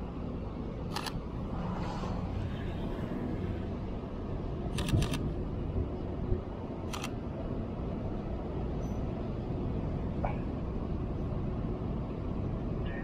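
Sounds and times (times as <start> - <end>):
low traffic noise: 0.0 - 13.0
camera shutter double click: 4.8 - 5.2.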